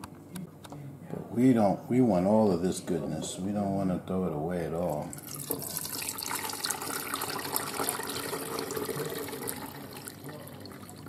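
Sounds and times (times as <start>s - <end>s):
gravy splashing and draining: 4.9s - 11.0s.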